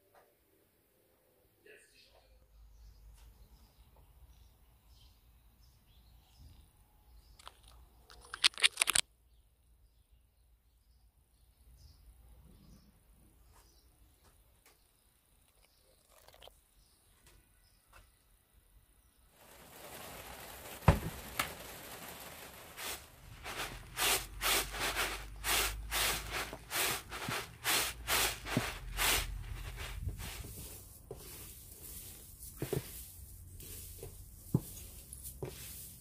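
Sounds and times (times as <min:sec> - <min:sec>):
seeds rattling in plastic sieve: 0:07.4 - 0:09.0, 0:19.3 - 0:36.0
dry stalks rustling by hand: 0:19.4 - 0:36.0.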